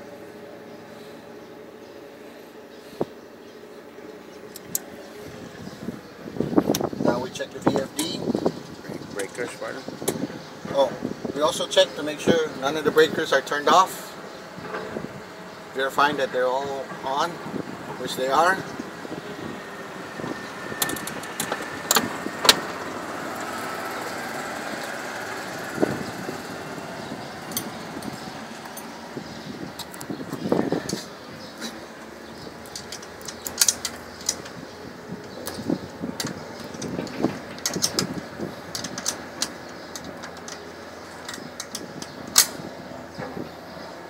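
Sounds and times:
machinery engine drone: 0:12.0 - 0:44.0
metal latch clicking: 0:32.6 - 0:34.6, 0:35.3 - 0:43.4.

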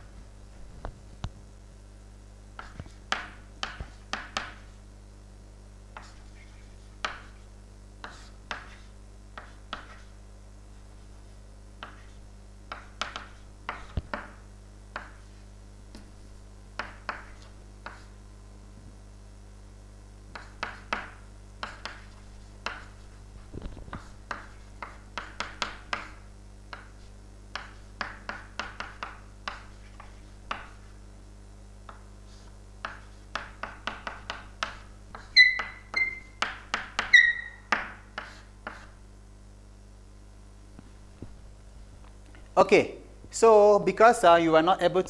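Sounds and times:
chalk writing on chalkboard: 0:02.6 - 0:04.8, 0:06.0 - 0:10.2, 0:11.8 - 0:14.4, 0:15.0 - 0:16.1, 0:16.8 - 0:18.2, 0:20.3 - 0:23.2, 0:23.9 - 0:31.0, 0:31.9 - 0:39.0
chalk squeaking: 0:06.0 - 0:07.4, 0:08.0 - 0:10.1, 0:34.7 - 0:38.9.

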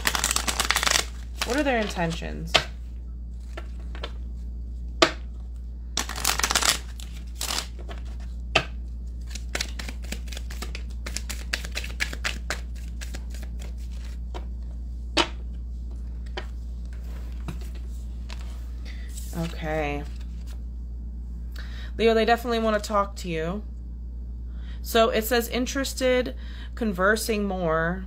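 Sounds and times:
cards snapping and tapping: 0:00.0 - 0:01.9, 0:05.0 - 0:05.3, 0:06.0 - 0:14.4, 0:15.2 - 0:15.4
cards riffling: 0:00.0 - 0:02.7, 0:06.0 - 0:14.4.

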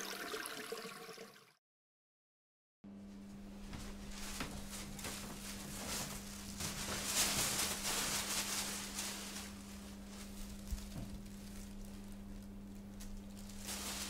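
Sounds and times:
low steady hum: 0:02.9 - 0:14.0.

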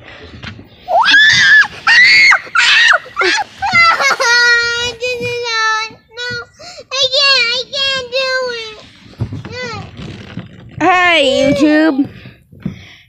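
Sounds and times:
child screaming: 0:00.9 - 0:04.6.

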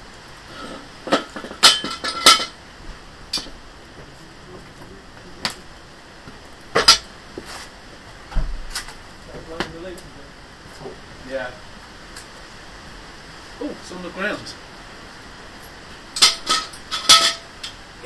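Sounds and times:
metal tools clinking on stone: 0:16.2 - 0:17.7.

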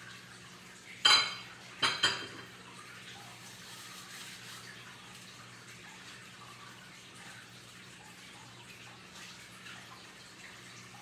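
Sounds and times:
kitchenware clinking: 0:01.0 - 0:02.6.

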